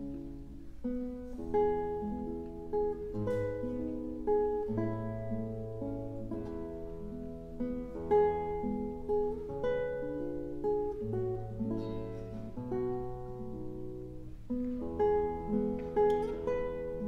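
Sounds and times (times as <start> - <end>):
classical guitar plucking: 0.0 - 17.0.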